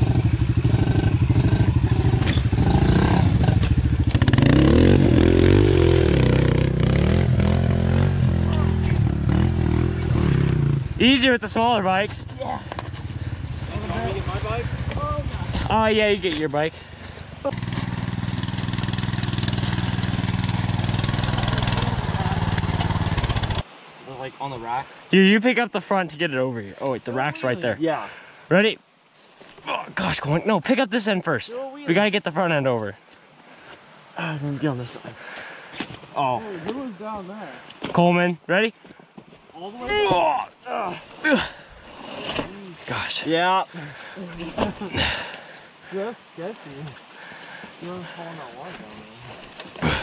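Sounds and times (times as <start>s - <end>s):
pit bike engine revving: 0.0s - 11.2s, 17.4s - 23.6s.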